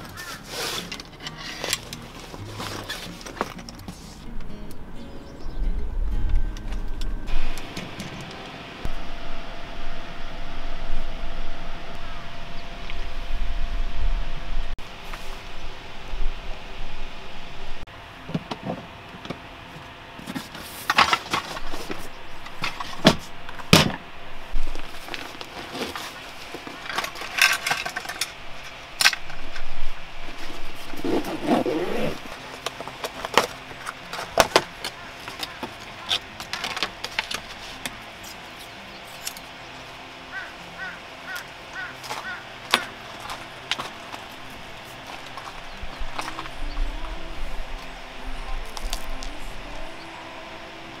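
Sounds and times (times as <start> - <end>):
fabric pouch rustling: 30.4 - 32.6.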